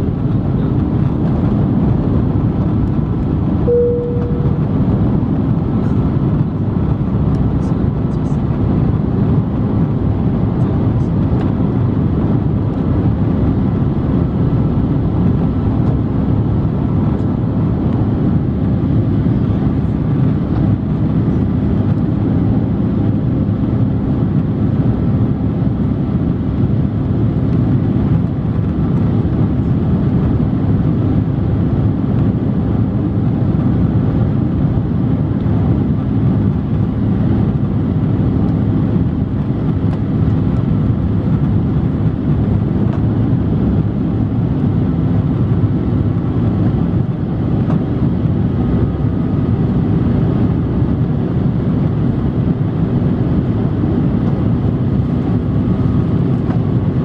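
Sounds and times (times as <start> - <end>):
jet engine rumble in cabin: 0.0 - 57.0
faint even hum: 3.7 - 5.0.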